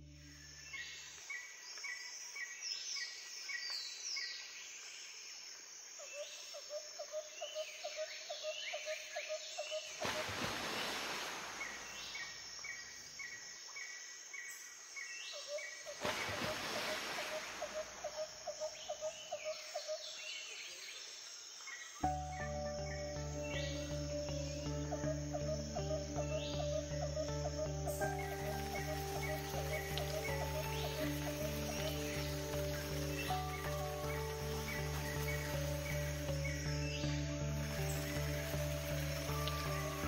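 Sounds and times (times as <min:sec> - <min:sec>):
birds chirping: 0:15.3 - 0:40.0.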